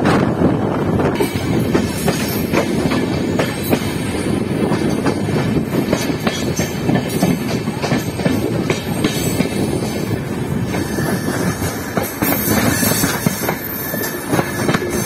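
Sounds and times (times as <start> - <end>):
train wheels rumbling on track: 0.0 - 15.0.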